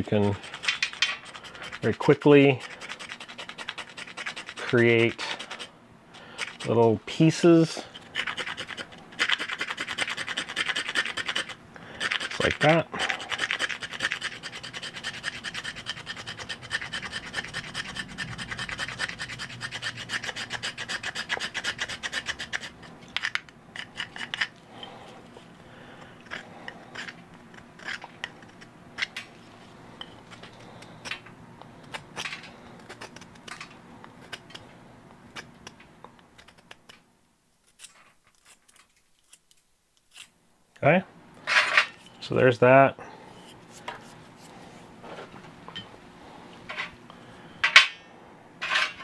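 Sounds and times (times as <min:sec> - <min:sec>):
knife scraping wood: 0:00.0 - 0:31.2, 0:31.8 - 0:37.0, 0:37.6 - 0:40.4.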